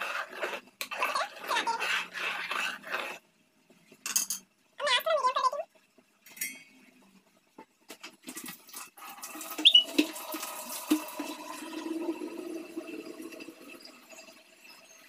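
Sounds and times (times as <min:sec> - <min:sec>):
water running: 0:07.8 - 0:15.0.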